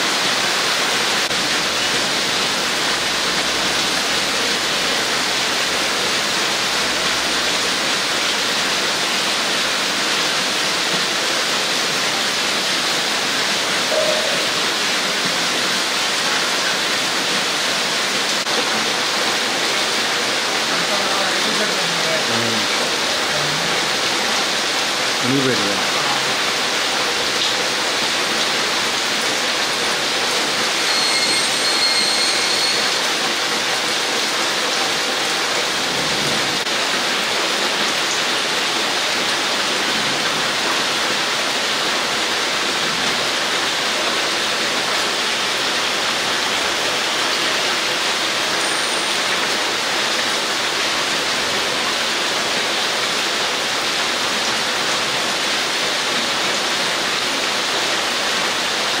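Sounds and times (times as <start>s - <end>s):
heavy rain on foliage: 0.0s - 59.0s.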